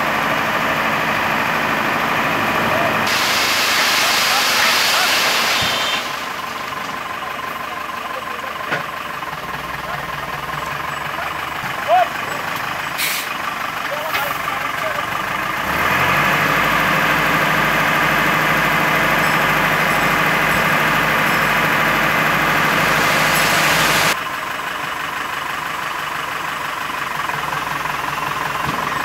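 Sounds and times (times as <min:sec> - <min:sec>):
diesel truck engine revving: 0:00.0 - 0:29.0
hydraulic hoist hiss and whine: 0:03.1 - 0:06.4, 0:22.7 - 0:24.2.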